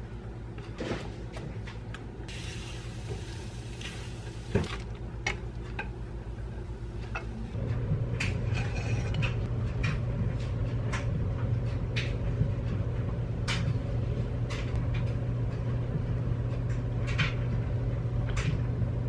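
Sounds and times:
steady low hum: 0:00.0 - 0:19.0
spatula scraping a frying pan: 0:08.5 - 0:09.2.

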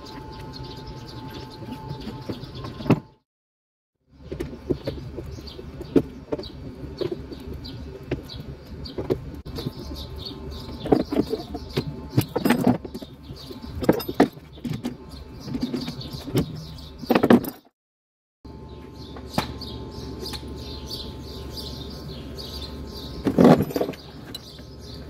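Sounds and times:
small birds chirping: 0:00.0 - 0:03.2, 0:04.1 - 0:17.6, 0:18.5 - 0:25.0
steady low hum: 0:18.5 - 0:25.0.

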